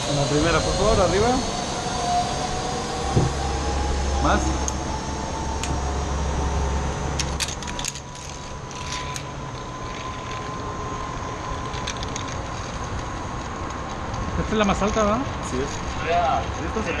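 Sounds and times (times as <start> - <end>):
low rumble: 0.0 - 14.5
metal harness hardware clinking: 7.2 - 10.6.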